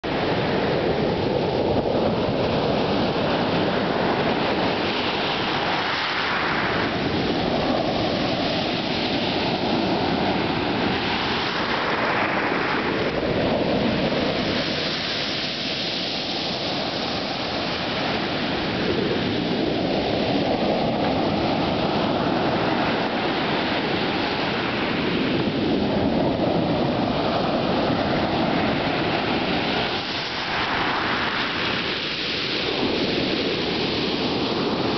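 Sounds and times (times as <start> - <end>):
waves washing over pebbles: 0.1 - 34.9.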